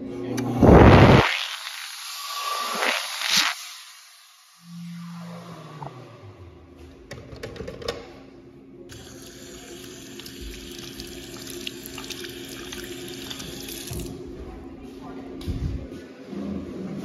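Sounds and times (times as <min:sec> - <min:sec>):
faucet water running into sink: 0:08.9 - 0:14.1.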